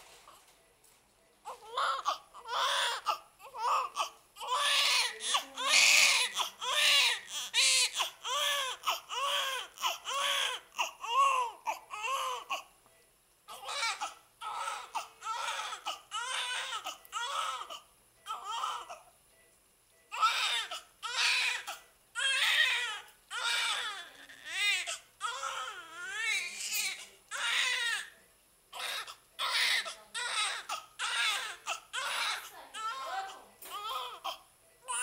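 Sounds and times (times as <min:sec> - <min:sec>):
newborn baby crying: 0:01.5 - 0:12.7, 0:13.5 - 0:19.0, 0:20.1 - 0:28.1, 0:28.7 - 0:35.0.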